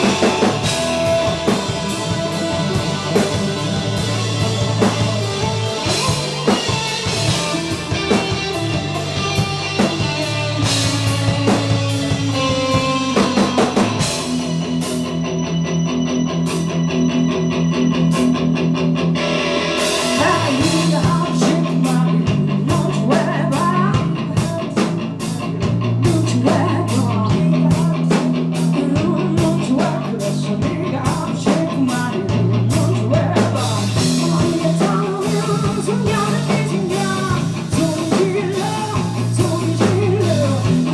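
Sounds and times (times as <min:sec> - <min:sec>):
drum kit: 0:00.0 - 0:40.9
electric guitar: 0:00.0 - 0:40.9
person singing: 0:20.1 - 0:40.9.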